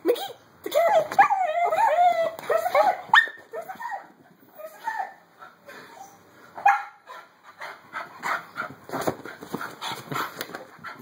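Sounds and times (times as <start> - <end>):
dog barking: 6.6 - 7.0.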